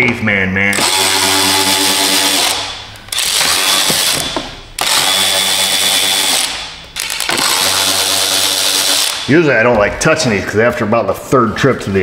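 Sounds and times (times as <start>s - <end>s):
electric ratchet motor whirring: 0.8s - 9.3s.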